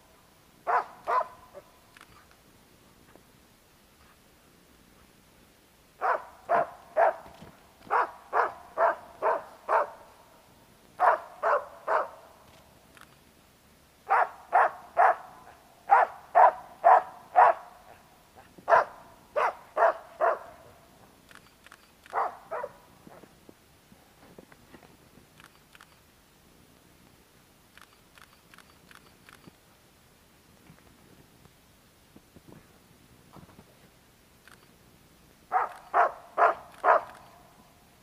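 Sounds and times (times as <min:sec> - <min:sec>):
dog barking: 0:00.7 - 0:01.6, 0:06.0 - 0:07.2, 0:07.9 - 0:10.0, 0:11.0 - 0:12.2, 0:14.1 - 0:15.3, 0:15.9 - 0:18.0, 0:18.7 - 0:20.6, 0:22.1 - 0:22.8, 0:35.5 - 0:37.2.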